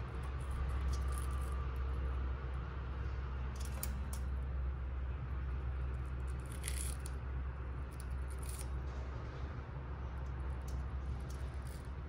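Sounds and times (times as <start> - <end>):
steady low rumble: 0.0 - 12.0
beak clicks and crunches on metal: 6.2 - 7.2, 7.9 - 8.8.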